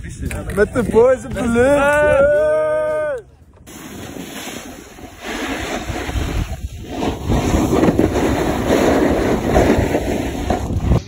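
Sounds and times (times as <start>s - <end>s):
wind buffeting microphone: 0.0s - 11.0s
snow scraping under snowboard: 3.7s - 11.0s.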